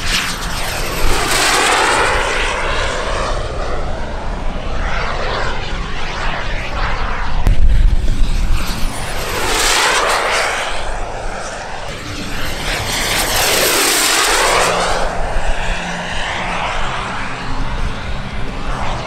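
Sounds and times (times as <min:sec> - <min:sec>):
model glider whooshing past: 0:00.0 - 0:19.0.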